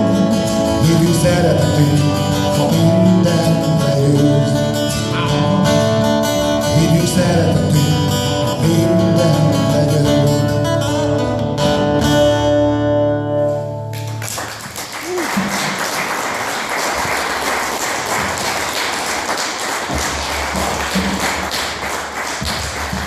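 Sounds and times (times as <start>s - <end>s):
acoustic guitars playing: 0.0s - 23.0s
audience applauding: 13.9s - 23.0s.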